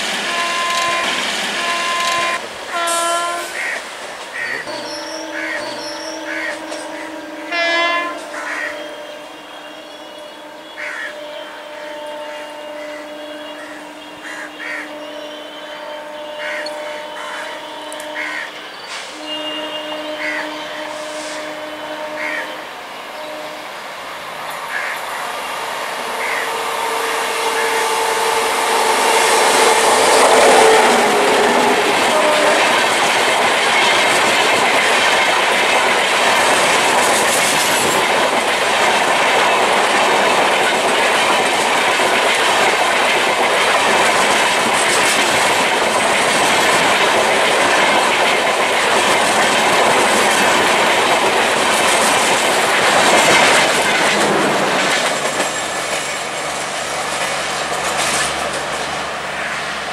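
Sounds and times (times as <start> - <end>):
train horn tone: 0.0 - 3.8, 4.4 - 24.1, 24.7 - 38.0
train wheels clattering over rail joints: 29.5 - 59.2.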